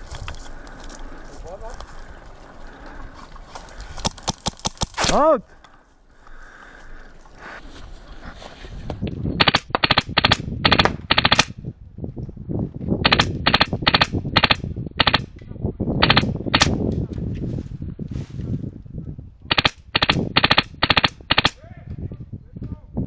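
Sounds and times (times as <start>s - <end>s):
airsoft rifle rapid bursts: 9.4s - 11.5s, 13.0s - 15.2s, 16.0s - 16.7s, 19.5s - 21.6s.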